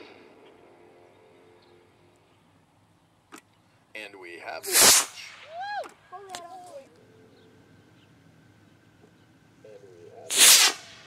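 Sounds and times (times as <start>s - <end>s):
rocket motor whoosh: 4.7s - 5.4s, 10.3s - 11.0s
high rising-and-falling cry: 5.4s - 6.9s.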